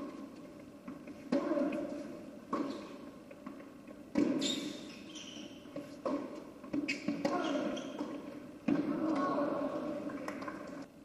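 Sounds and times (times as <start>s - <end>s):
ball bouncing on hard court: 0.9s - 4.8s, 5.6s - 10.8s
tennis ball hit by racket: 1.3s - 1.9s, 2.5s - 4.4s, 6.0s - 9.4s.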